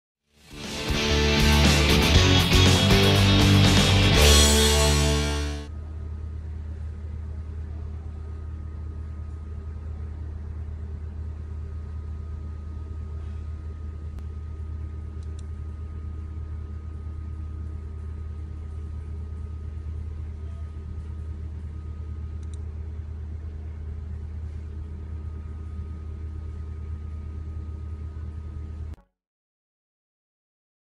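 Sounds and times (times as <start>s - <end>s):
steady low hum: 0.5s - 29.0s.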